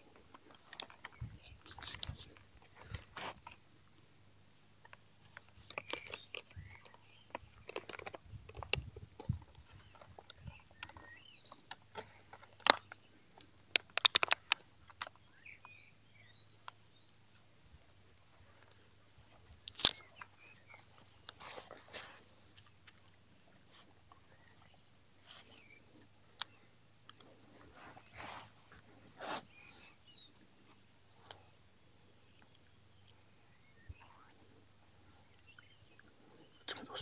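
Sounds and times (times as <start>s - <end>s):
dog chewing plastic: 5.4s - 13.0s.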